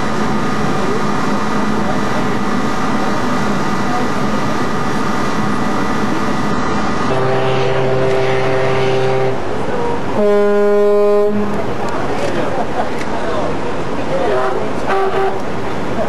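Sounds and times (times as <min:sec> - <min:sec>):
ship's horn blast: 0:07.0 - 0:11.8, 0:14.2 - 0:15.6.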